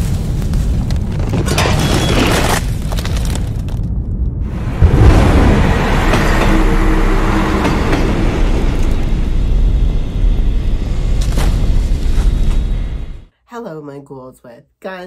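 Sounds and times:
spooky soundtrack rumble: 3.8s - 13.3s.

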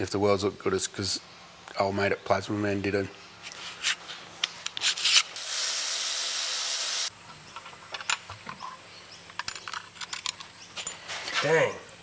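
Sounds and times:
loud even hiss: 5.4s - 7.1s
hand tools clicking and tapping metal: 7.3s - 11.4s.

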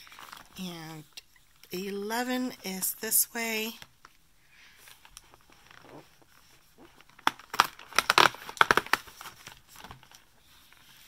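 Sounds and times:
cardboard tearing and clicking: 7.0s - 10.2s.

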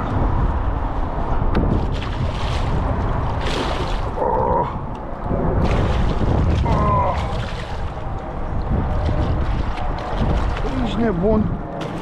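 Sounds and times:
wind rumble on microphone: 0.0s - 12.0s
fish thrashing and splashing water: 1.6s - 4.2s, 5.5s - 11.0s
water splashing against kayak: 1.6s - 4.2s, 5.5s - 11.0s.

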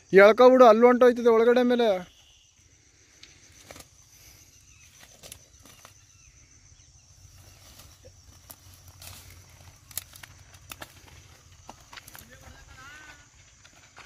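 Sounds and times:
grass rustling underfoot: 3.4s - 6.1s, 7.2s - 14.0s.

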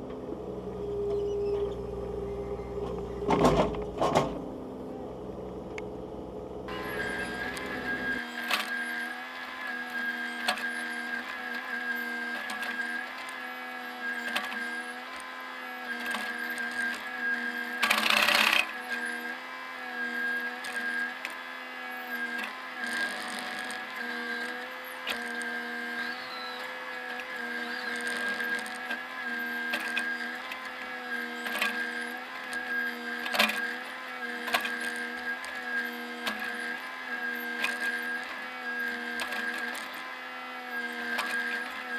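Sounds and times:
excavator diesel engine and hydraulics: 0.0s - 41.9s
knocks and rattles: 2.8s - 4.5s.

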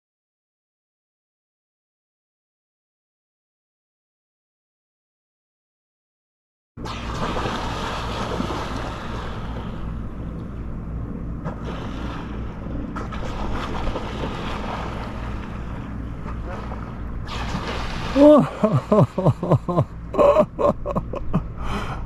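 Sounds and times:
water rushing past hull: 6.8s - 10.2s, 11.5s - 19.8s
boat engine droning: 6.8s - 22.0s.

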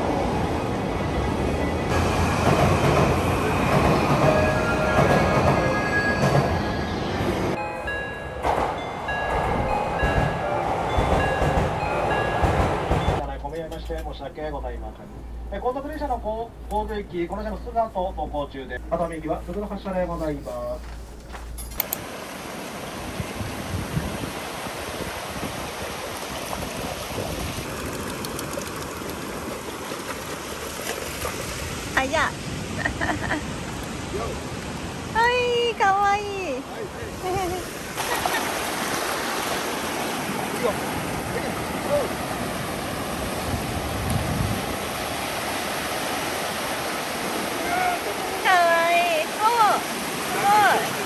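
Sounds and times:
train wheels rumbling and rattling: 1.9s - 7.6s, 8.3s - 14.3s
flowing water rushing: 21.8s - 51.0s.

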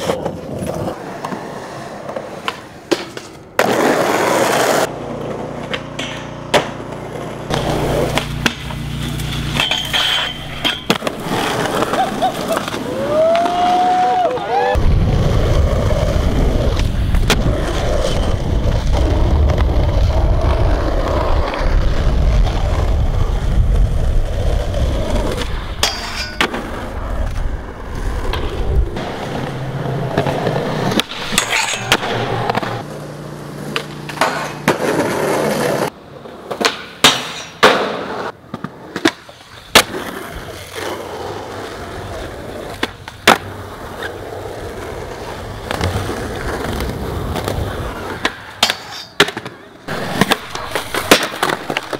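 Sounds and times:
skateboard wheels rolling on pavement: 0.0s - 51.9s
skateboard wooden clacks: 5.2s - 13.7s, 33.6s - 40.2s, 45.6s - 51.9s.

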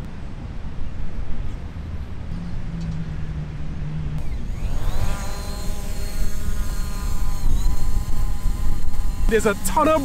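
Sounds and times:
drone propellers buzzing: 2.3s - 10.0s.

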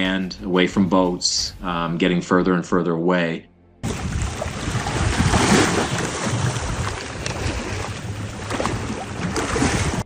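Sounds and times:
water sloshing against hull: 3.8s - 10.0s
wind buffeting microphone: 3.8s - 10.0s.

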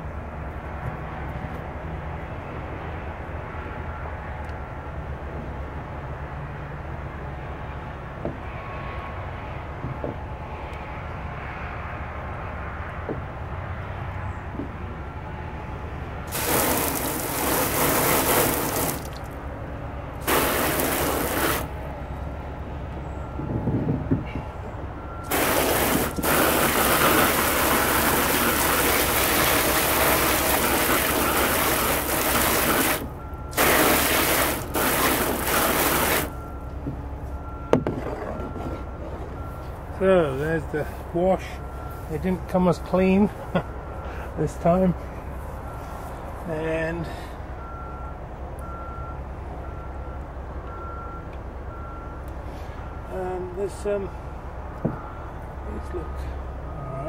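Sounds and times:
hose nozzle spraying water: 16.3s - 19.4s, 20.2s - 21.8s, 25.3s - 36.4s.

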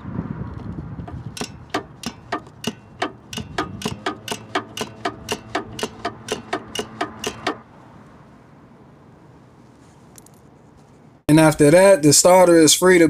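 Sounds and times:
ratchet clicking: 1.1s - 7.6s.

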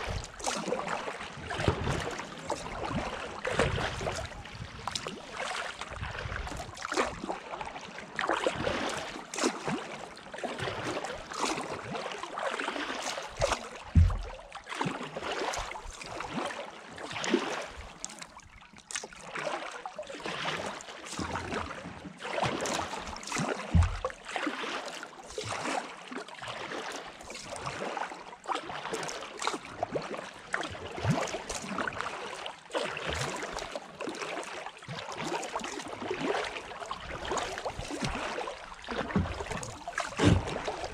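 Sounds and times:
paddle splashing in water: 0.0s - 40.9s
dull thumps: 13.9s - 14.3s, 23.7s - 24.1s.

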